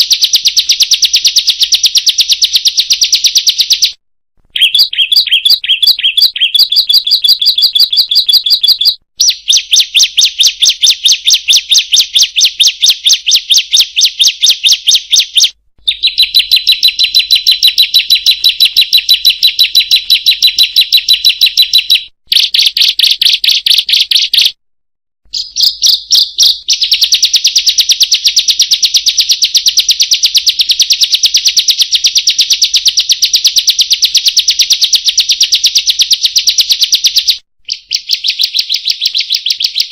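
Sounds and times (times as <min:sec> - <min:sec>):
bird calling sharp high notes: 0:04.5 - 0:24.5.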